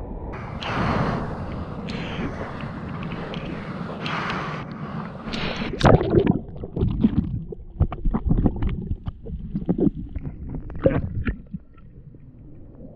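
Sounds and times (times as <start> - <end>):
wind on microphone: 0.0 - 11.7
ocean water rushing: 0.3 - 7.6
water splashes and knocks: 5.4 - 11.9.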